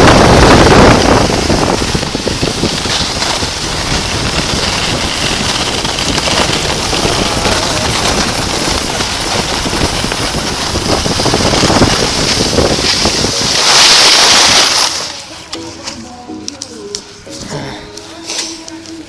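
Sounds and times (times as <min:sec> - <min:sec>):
wind rushing over microphone: 0:00.0 - 0:15.0
sliding over packed snow: 0:00.0 - 0:15.5.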